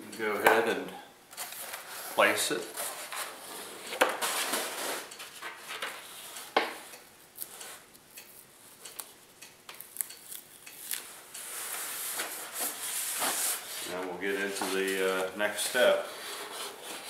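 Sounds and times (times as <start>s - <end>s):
paper and grass mat rustling: 11.5s - 17.0s.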